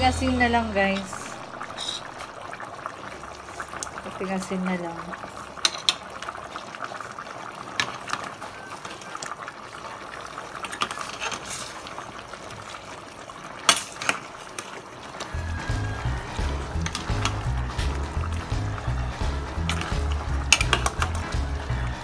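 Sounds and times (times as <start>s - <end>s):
music: 0.0s - 0.8s, 15.3s - 22.0s
stew bubbling in a pot: 0.0s - 22.0s.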